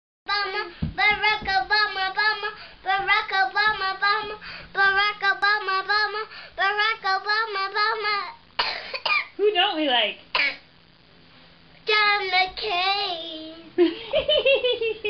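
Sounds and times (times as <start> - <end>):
girl singing: 0.3 - 8.4, 11.8 - 13.8.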